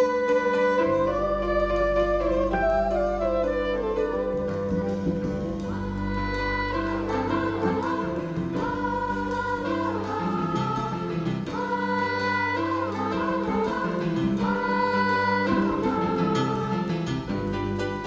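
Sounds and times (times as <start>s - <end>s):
bass notes: 0.0s - 18.0s
live band playing: 0.0s - 18.0s
children's choir singing: 4.9s - 18.0s.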